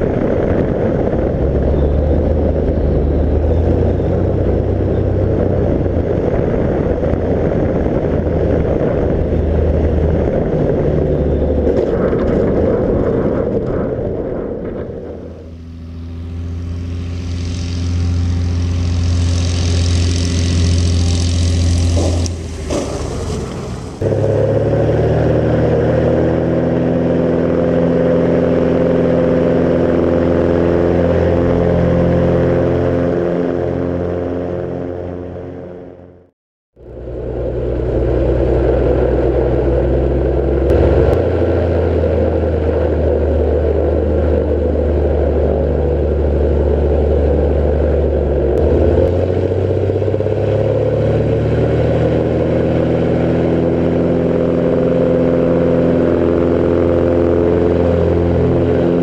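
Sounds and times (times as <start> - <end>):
wind noise: 0.0 - 35.9
light aircraft engine droning: 0.0 - 36.2, 36.8 - 59.0.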